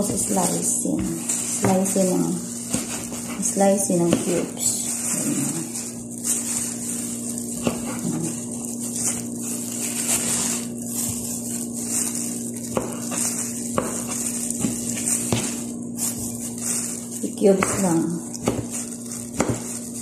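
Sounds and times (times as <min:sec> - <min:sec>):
steady hum and hiss: 0:00.0 - 0:20.0
knife cutting fruit: 0:12.0 - 0:16.3.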